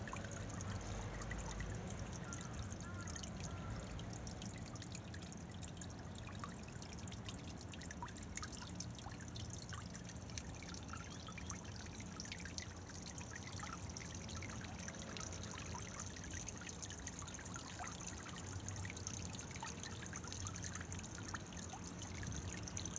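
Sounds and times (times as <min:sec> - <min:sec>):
fountain water splashing: 0:00.0 - 0:22.9.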